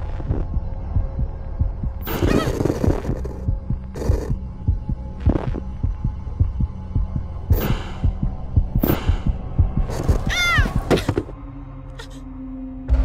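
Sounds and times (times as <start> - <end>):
low droning hum: 0.0 - 10.2
fast heartbeat: 0.0 - 11.1
person crying out in fright: 10.3 - 10.8.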